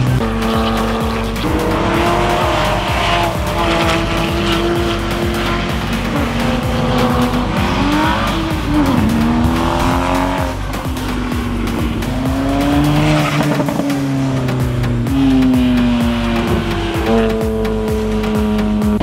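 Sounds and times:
sports car engines at high revs: 0.0 - 19.0.

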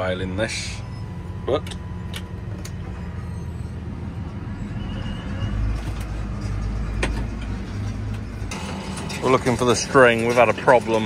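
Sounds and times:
tractor engine running: 5.8 - 11.0.

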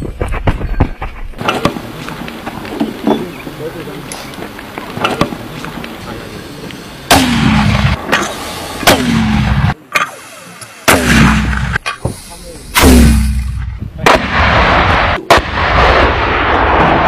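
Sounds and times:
mortar firing bangs: 1.4 - 3.2, 4.9 - 6.0, 7.0 - 12.0, 12.7 - 17.0.

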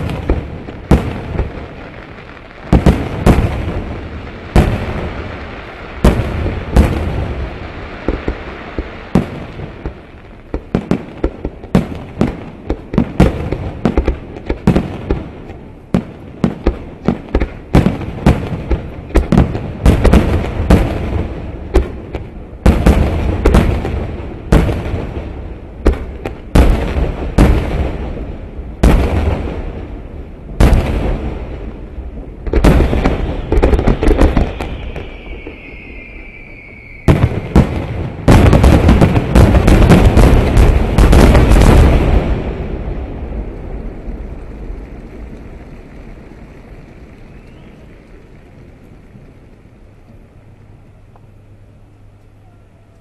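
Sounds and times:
fireworks booming: 0.0 - 49.4
low rumble: 41.9 - 53.0.

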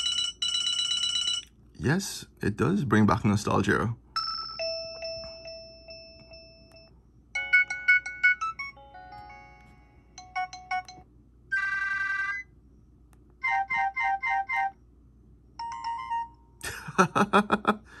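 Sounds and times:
phone ringtone melodies: 0.0 - 1.5, 4.2 - 6.8, 7.4 - 12.5, 13.4 - 14.7, 15.6 - 16.6.

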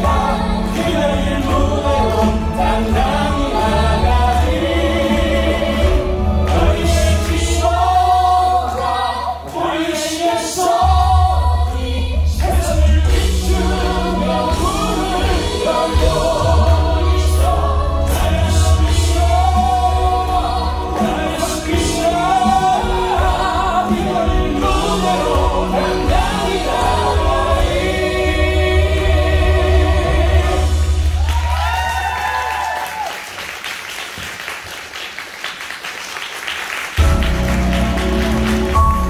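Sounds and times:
cast singing: 0.0 - 31.0.

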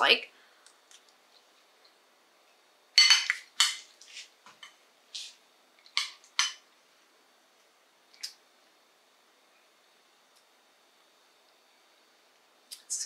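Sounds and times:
utensil clinking against dish: 3.0 - 3.8, 6.0 - 6.6.

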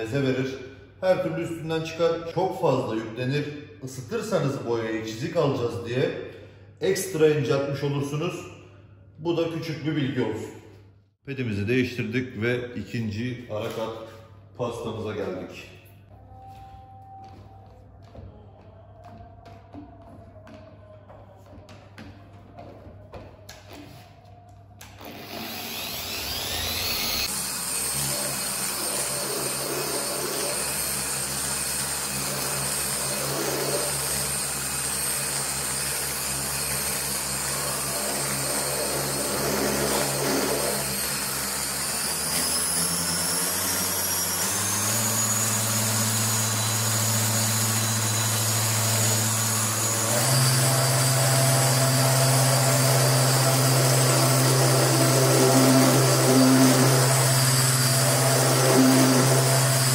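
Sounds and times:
orbital polisher humming: 25.0 - 59.9.

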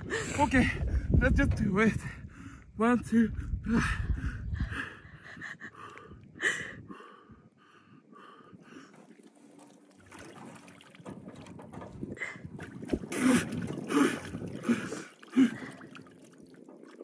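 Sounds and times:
water sloshing: 8.8 - 17.0
splashing: 8.9 - 17.0.

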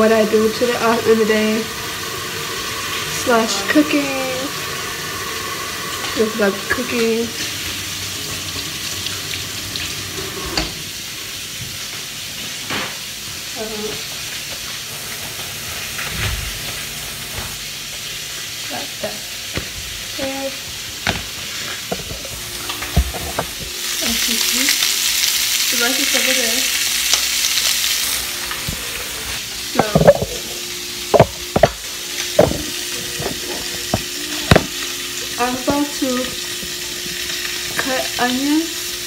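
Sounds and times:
ham sizzling in a frying pan: 0.0 - 39.0
sharp knocks and clatters: 31.1 - 31.8, 32.4 - 34.7.

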